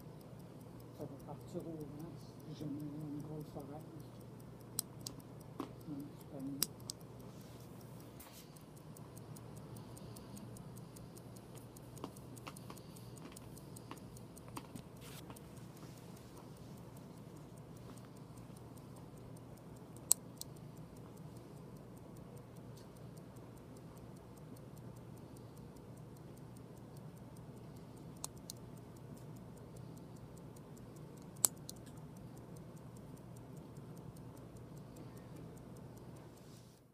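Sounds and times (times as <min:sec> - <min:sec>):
chronograph mechanism clicks: 0:00.0 - 0:36.9
wristwatch ticking: 0:00.0 - 0:36.9.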